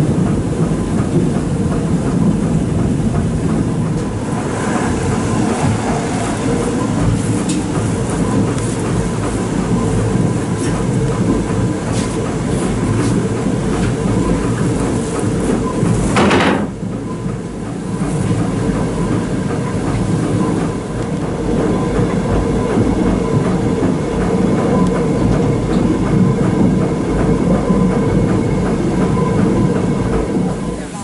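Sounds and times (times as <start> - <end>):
wooden windmill machinery rumbling: 0.0 - 31.0
rope rushing burst: 4.0 - 9.6.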